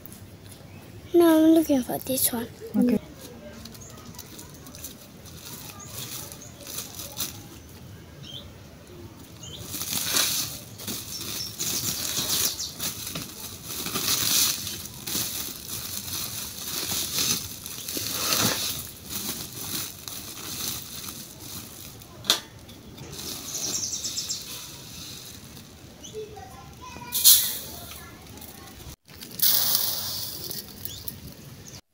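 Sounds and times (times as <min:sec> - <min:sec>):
plastic sack rustling: 0:03.7 - 0:07.5, 0:09.4 - 0:22.2, 0:23.0 - 0:31.1.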